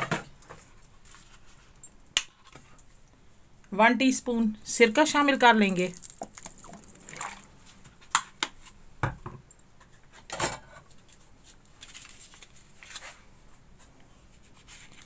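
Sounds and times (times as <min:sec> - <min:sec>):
liquid trickling into steel bowl: 0:06.1 - 0:07.5.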